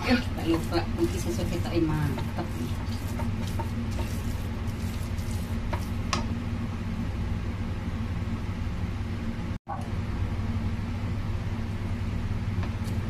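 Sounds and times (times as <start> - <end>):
spatula scraping batter in wok: 0.0 - 6.2
steady low hum: 0.0 - 13.0.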